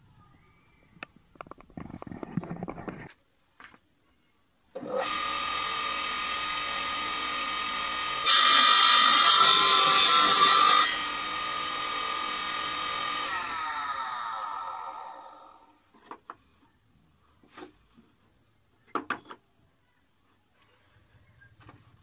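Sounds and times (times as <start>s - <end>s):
saw blade cutting wood: 4.8s - 15.5s
table saw whine: 4.8s - 15.7s.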